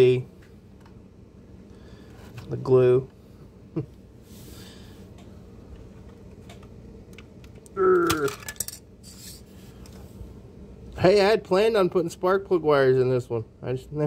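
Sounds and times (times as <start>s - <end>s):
low room hum: 0.0s - 14.0s
person murmuring: 7.7s - 8.4s.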